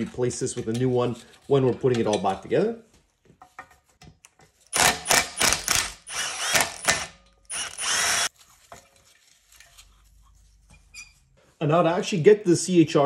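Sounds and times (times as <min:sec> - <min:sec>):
cordless power driver bursts: 0:04.8 - 0:08.3.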